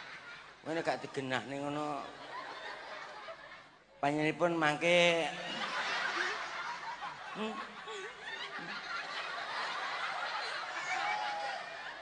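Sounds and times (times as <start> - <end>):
audience laughing: 1.8 - 3.8, 5.3 - 12.0.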